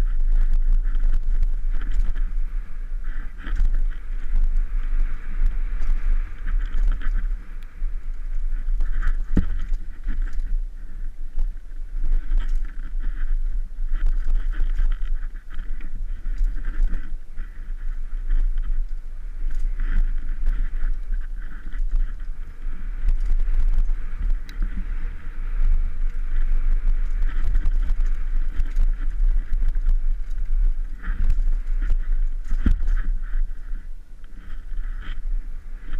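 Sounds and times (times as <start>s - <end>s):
bike clicks and rattles: 0.0s - 35.9s
tyre noise on dirt: 0.0s - 35.9s
wind rumble on microphone: 0.0s - 35.9s.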